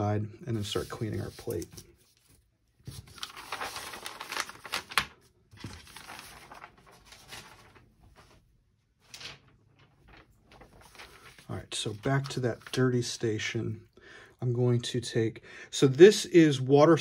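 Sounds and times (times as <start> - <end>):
paper sheets rustling: 0.6 - 13.1.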